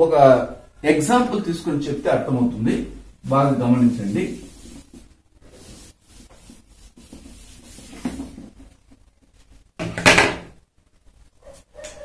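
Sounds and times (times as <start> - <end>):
marker pen scratching on whiteboard: 3.9 - 9.4.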